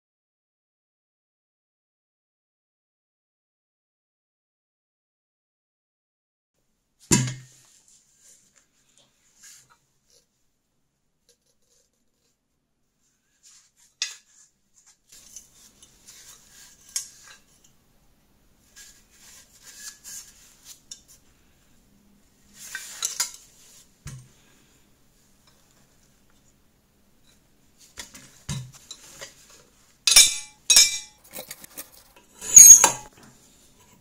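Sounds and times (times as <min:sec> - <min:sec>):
metal clinks and taps: 0:30.1 - 0:31.2.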